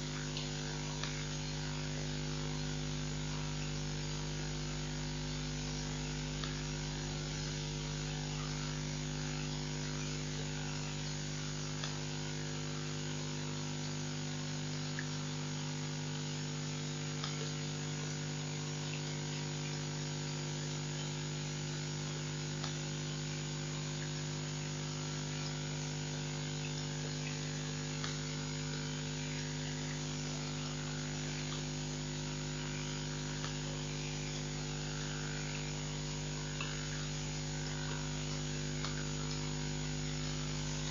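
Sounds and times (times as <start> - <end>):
electrical mains hum: 0.0 - 40.9.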